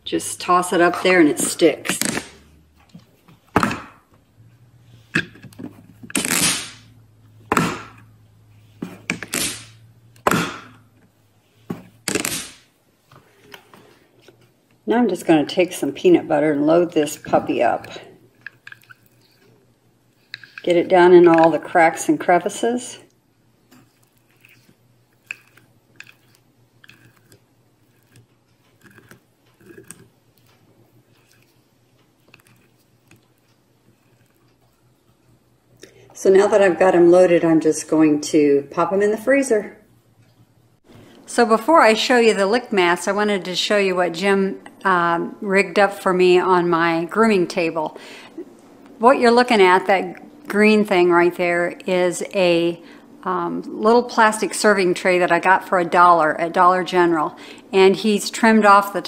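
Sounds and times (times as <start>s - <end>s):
spatula spreading peanut butter: 23.7s - 35.4s.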